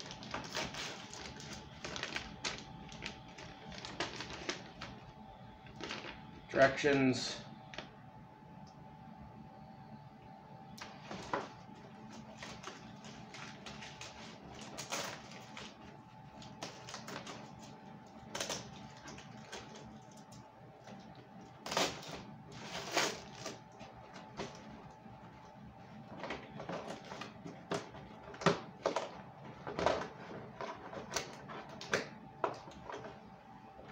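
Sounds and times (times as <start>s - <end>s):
packaging crinkles: 0.0s - 6.5s, 10.8s - 24.7s
packaging rustling: 0.0s - 6.5s, 10.8s - 24.8s.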